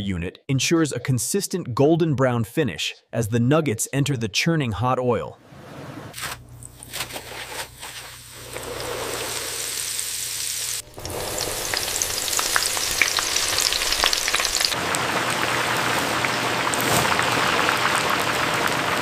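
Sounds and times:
food deep-frying in hot oil: 7.0s - 19.0s.

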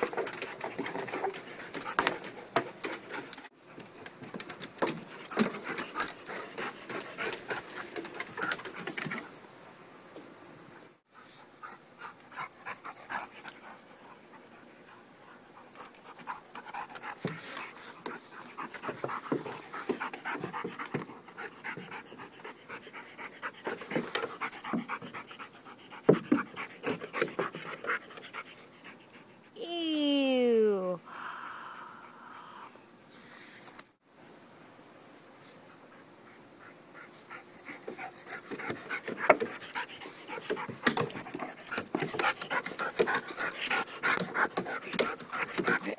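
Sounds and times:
puppies panting: 11.1s - 29.5s, 35.8s - 45.9s.

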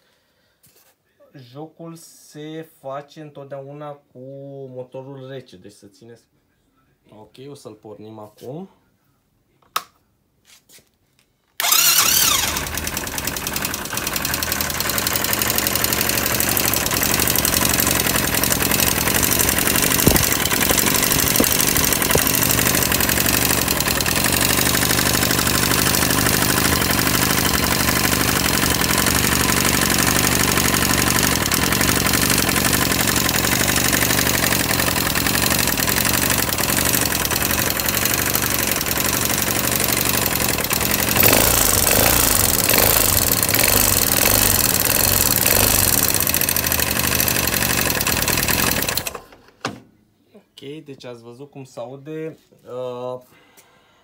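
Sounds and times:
engine starting and idling: 11.6s - 49.6s.

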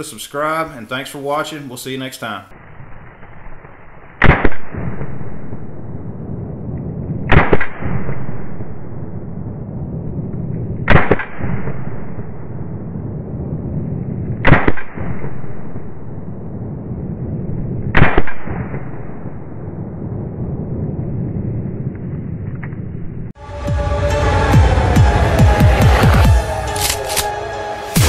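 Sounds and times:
pistol shots: 4.2s - 5.2s, 7.3s - 8.1s, 14.4s - 15.4s.

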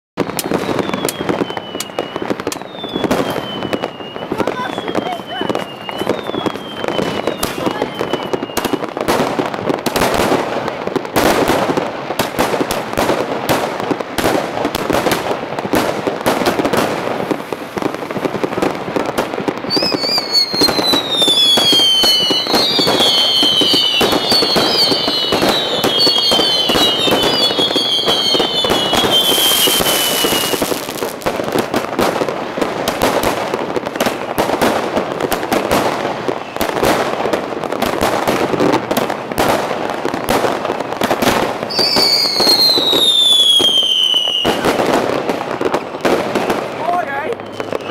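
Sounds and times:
falling firework whistles: 0.2s - 9.1s, 16.6s - 32.3s, 32.9s - 37.1s, 40.3s - 46.6s, 47.3s - 47.9s
firework shooting into the air: 0.2s - 47.9s
fireworks crackling and popping: 0.2s - 47.9s.

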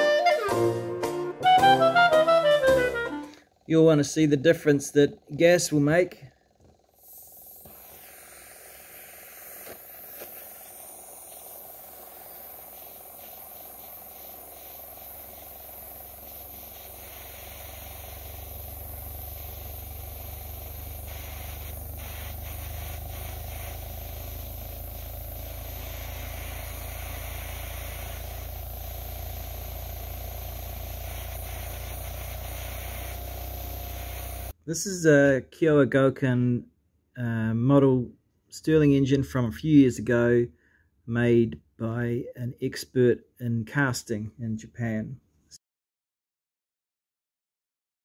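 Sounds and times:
gas torch hissing: 4.6s - 34.6s.

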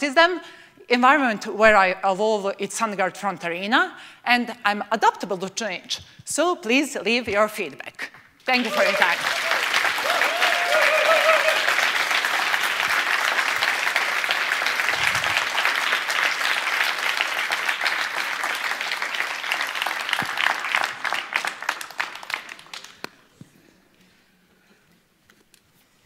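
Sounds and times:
audience applauding: 8.5s - 23.1s.

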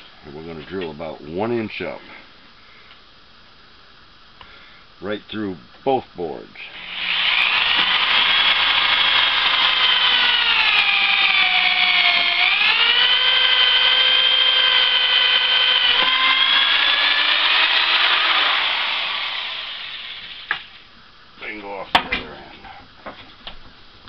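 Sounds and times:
electric drill boring wood: 6.7s - 20.8s.

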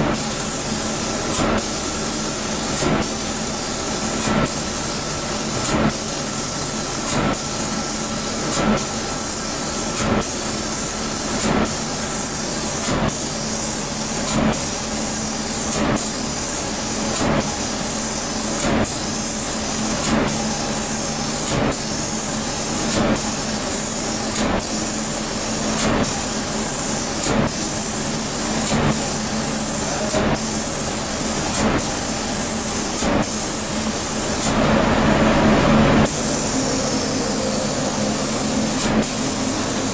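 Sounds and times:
spray gun hissing: 0.2s - 34.6s, 36.0s - 39.9s
steady low hum: 34.6s - 39.9s.

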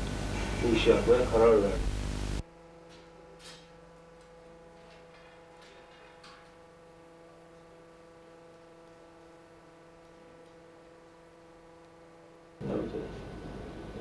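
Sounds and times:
faint electrical hum: 0.0s - 14.0s.

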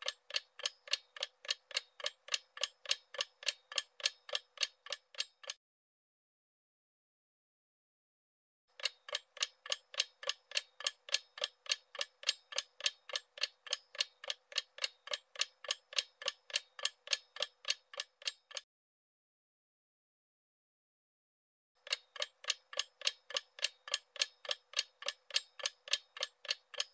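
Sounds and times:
clock ticking: 0.0s - 5.6s, 8.8s - 18.6s, 21.8s - 26.9s.

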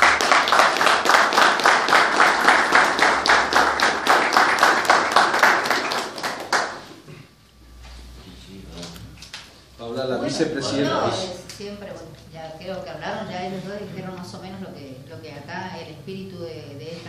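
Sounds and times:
people applauding: 0.0s - 7.1s.

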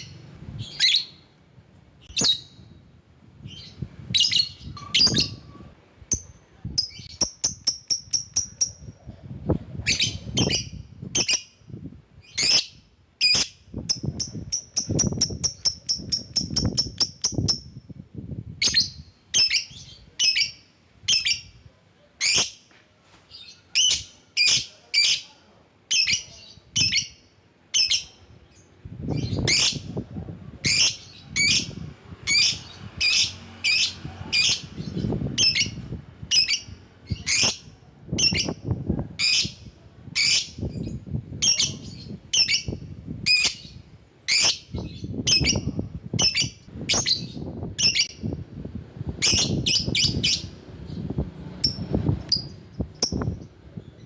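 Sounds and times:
lovebird shrill calls: 12.2s - 17.7s.

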